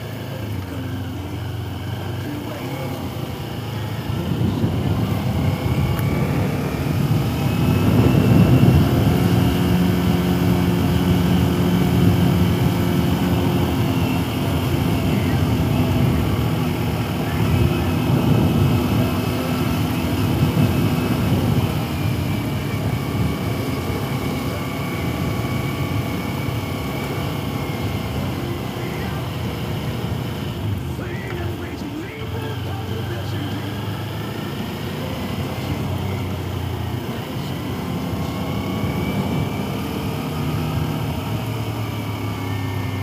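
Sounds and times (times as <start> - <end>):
motorcycle engine running: 0.0 - 43.0.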